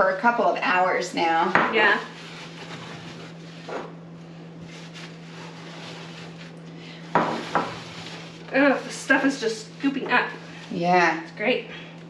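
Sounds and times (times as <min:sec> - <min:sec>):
steady low hum: 0:00.0 - 0:12.0
scraper scraping oven walls: 0:01.1 - 0:11.3.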